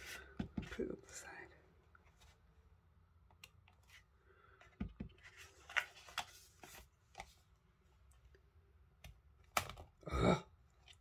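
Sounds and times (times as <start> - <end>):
paper rustling: 5.1 - 7.4.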